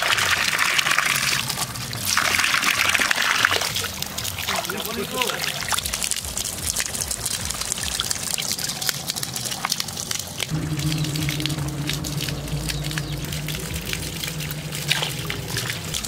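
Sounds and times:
water dripping and pouring: 0:00.0 - 0:16.0
water splashing in a steel bowl: 0:00.0 - 0:16.0
steady low hum: 0:10.5 - 0:16.0.

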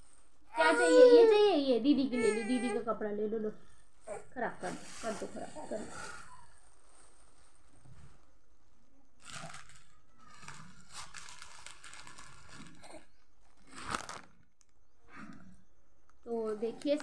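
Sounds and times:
plastic bags rustling: 0:03.9 - 0:08.5, 0:09.2 - 0:14.5.

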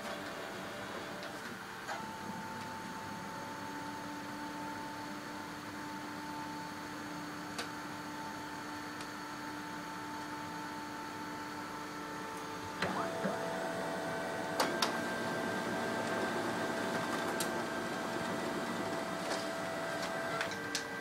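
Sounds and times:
printer running: 0:00.0 - 0:21.0
printer clicks: 0:14.6 - 0:15.0.

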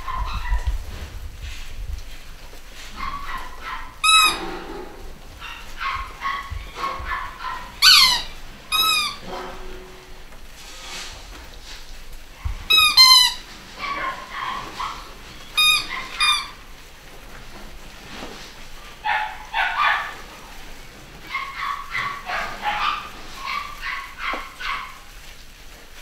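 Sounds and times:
puppies yelping: 0:02.9 - 0:04.7, 0:05.3 - 0:09.3, 0:12.6 - 0:16.9, 0:19.0 - 0:20.5, 0:21.1 - 0:25.1
puppies whining: 0:03.0 - 0:04.7, 0:05.4 - 0:09.4, 0:12.4 - 0:16.7.

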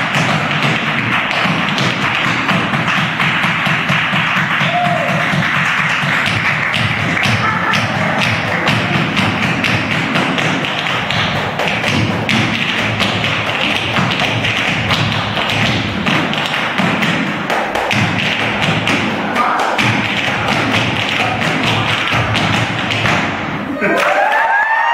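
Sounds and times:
tap shoes tapping on stage floor: 0:00.0 - 0:23.5.

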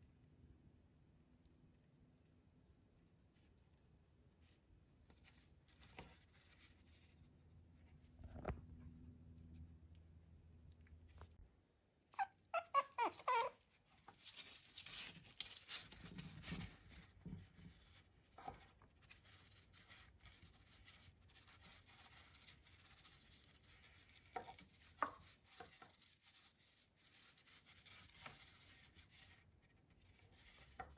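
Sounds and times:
soft rustling: 0:02.9 - 0:10.0
puppy whimpering: 0:12.1 - 0:13.6.

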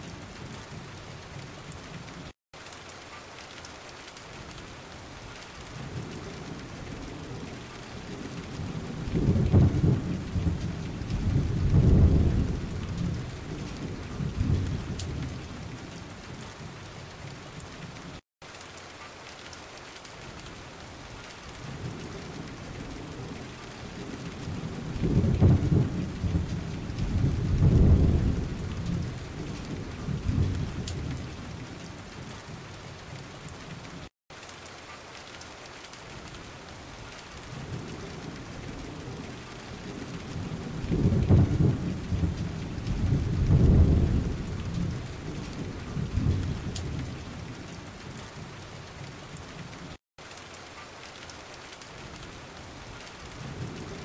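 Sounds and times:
steady rain: 0:00.0 - 0:54.0
thunder rolling: 0:08.0 - 0:15.7, 0:21.8 - 0:31.5, 0:39.9 - 0:47.2.

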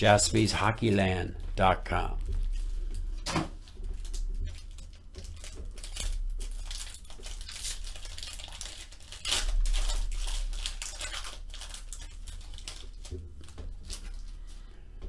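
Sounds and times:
foil wrapper crinkling and tearing: 0:03.6 - 0:14.6.

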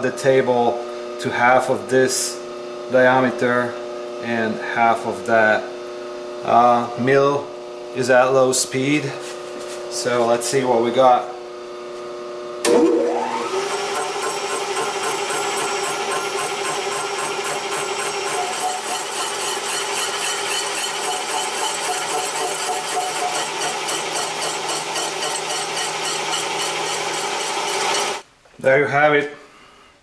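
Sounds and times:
milling machine spindle spinning: 0:12.6 - 0:28.2
saw teeth ticking on metal: 0:14.8 - 0:28.1.

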